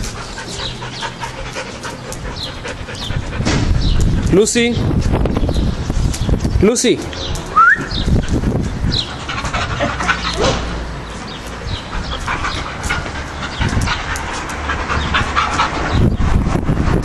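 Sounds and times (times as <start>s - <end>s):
claws scrabbling clicks: 0.0s - 3.1s, 11.4s - 15.9s
dogs panting: 0.0s - 17.0s.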